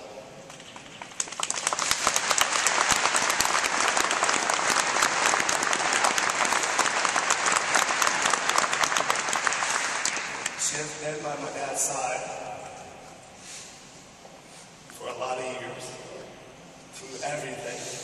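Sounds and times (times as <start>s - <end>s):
crowd clapping: 0.5s - 10.7s.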